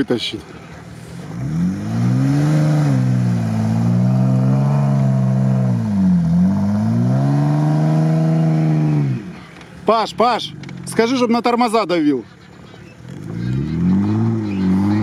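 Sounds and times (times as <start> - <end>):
car engine revving under load: 0.6 - 9.9, 12.7 - 15.0.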